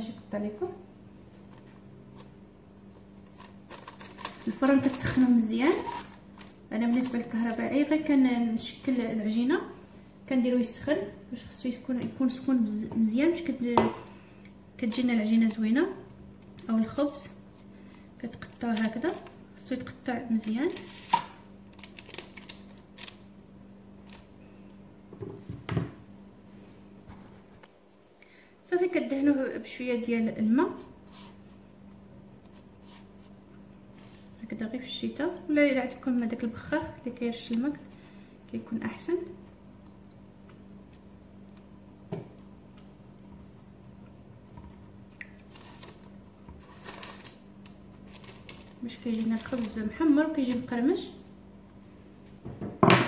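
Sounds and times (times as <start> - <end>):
steady low hum: 0.0 - 52.8
soft brushing on dough: 26.4 - 28.2, 32.4 - 34.4.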